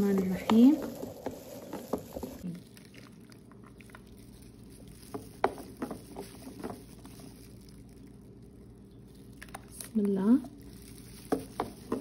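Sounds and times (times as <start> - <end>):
syrup sloshing: 0.3 - 9.7.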